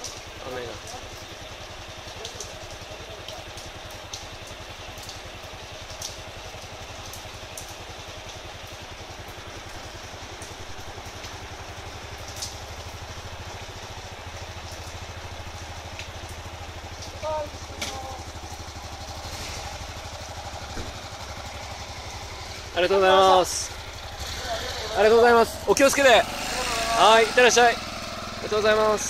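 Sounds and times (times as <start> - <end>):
heavy rain hissing: 0.0 - 29.0
motorcycle engine idling: 0.0 - 29.0.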